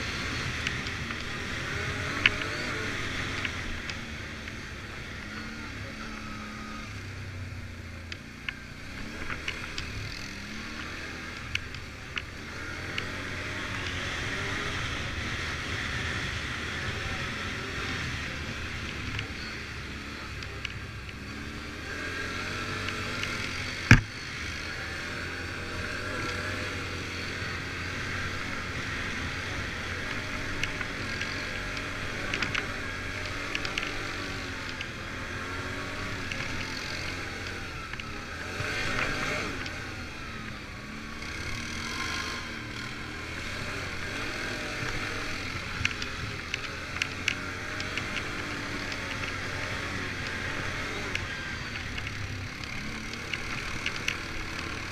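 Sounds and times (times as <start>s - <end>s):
quad bike engine running: 0.0s - 54.9s
clicks: 44.8s - 54.9s.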